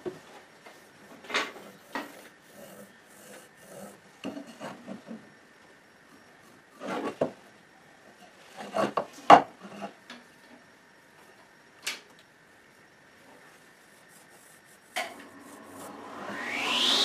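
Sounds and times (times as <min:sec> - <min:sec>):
pencil scraping wood: 0:00.7 - 0:05.1, 0:06.7 - 0:07.3, 0:13.5 - 0:15.9.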